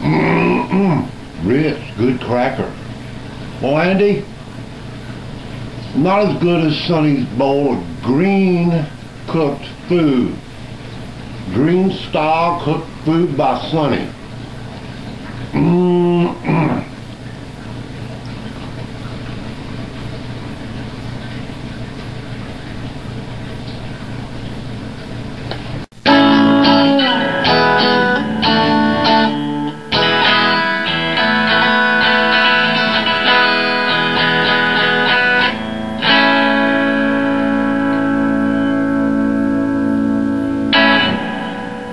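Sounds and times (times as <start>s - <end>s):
steady background hum: 0.0s - 41.9s
electric guitar picked notes: 26.0s - 41.9s.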